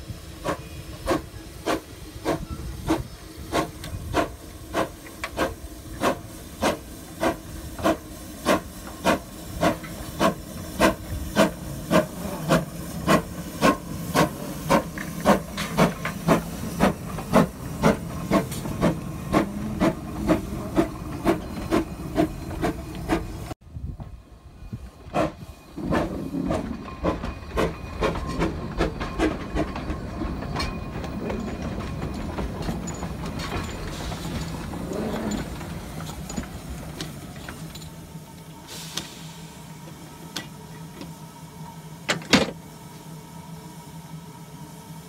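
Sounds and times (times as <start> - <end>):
steam hiss and hum: 0.0 - 23.6, 32.8 - 45.0
locomotive rumble: 0.0 - 43.2
steam locomotive clanking: 0.0 - 43.3.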